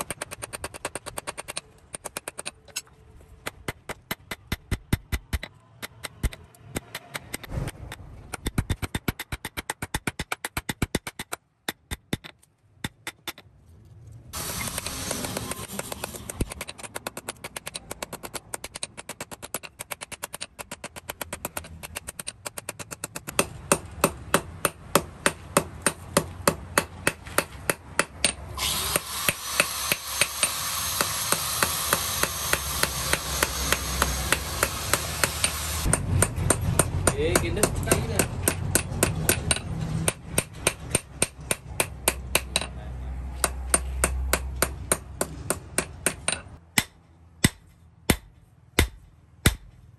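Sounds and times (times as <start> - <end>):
hammer striking hot metal on anvil: 23.4 - 42.7.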